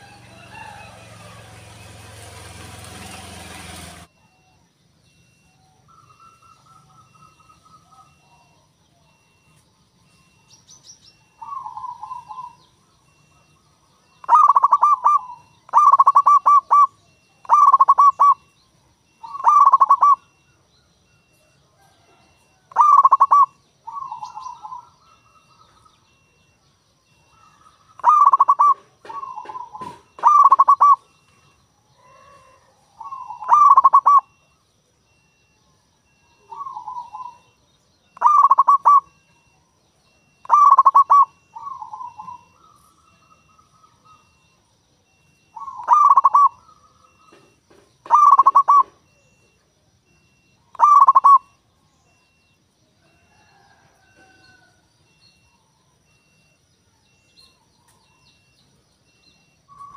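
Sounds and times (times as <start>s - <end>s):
dove cooing: 5.2s - 9.5s, 11.2s - 18.5s, 19.1s - 20.5s, 21.1s - 31.3s, 31.9s - 39.6s, 40.2s - 49.5s, 50.2s - 51.6s, 53.0s - 55.2s.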